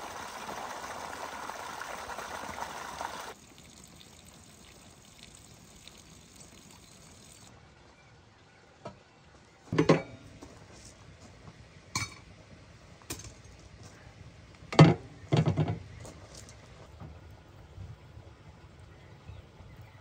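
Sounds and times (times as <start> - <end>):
dishes clattering: 9.7 - 10.2
cookware and dishes clinking: 9.7 - 10.3, 12.0 - 12.3.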